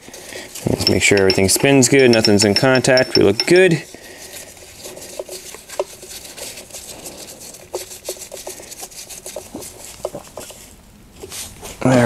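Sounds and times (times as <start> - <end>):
soft rustling: 0.0 - 12.0
metallic clinks of gears: 0.6 - 3.8.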